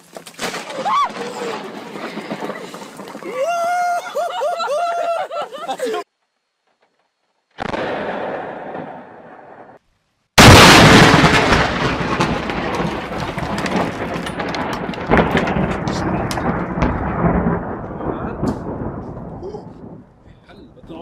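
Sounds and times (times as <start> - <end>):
lightning crack: 0.4 - 3.4, 7.6 - 9.8, 10.4 - 21.0
thunder rumbling: 0.5 - 3.7, 10.4 - 21.0.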